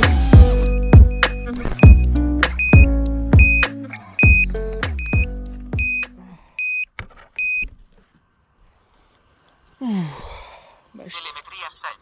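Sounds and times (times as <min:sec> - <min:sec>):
music track low notes: 0:00.0 - 0:06.3
short electronic beeps: 0:00.5 - 0:07.7.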